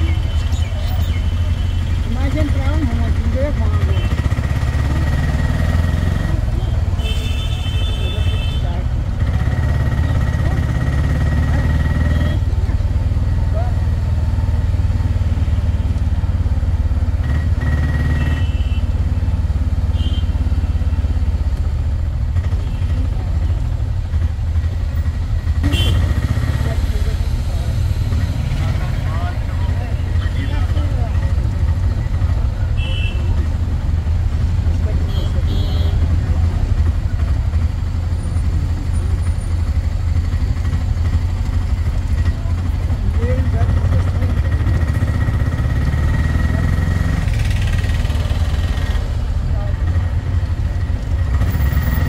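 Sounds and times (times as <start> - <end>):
car engine rumbling: 0.0 - 52.0
small vehicle engine running: 36.0 - 52.0.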